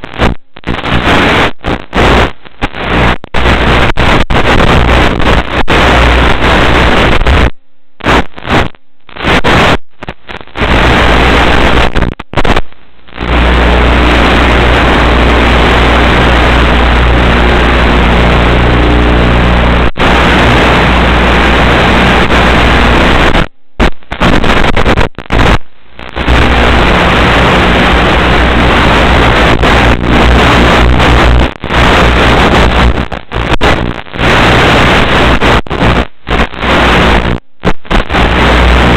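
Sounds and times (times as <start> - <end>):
steady low hum: 12.7 - 23.8.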